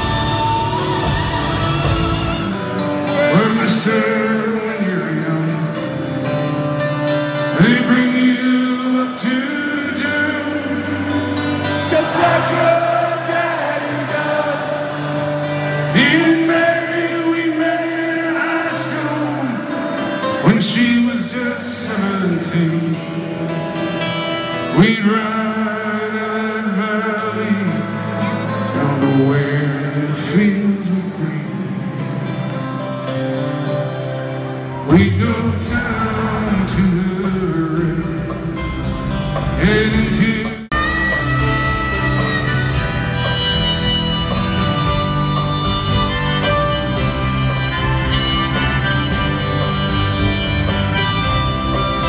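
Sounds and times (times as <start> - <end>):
man singing into a microphone: 0.0 - 32.2, 34.7 - 43.1
live band music: 0.0 - 52.0.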